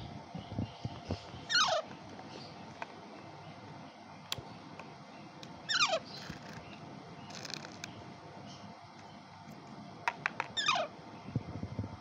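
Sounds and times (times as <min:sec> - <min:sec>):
parakeet chick squawking: 0:01.4 - 0:02.5, 0:05.6 - 0:06.4, 0:10.5 - 0:11.0.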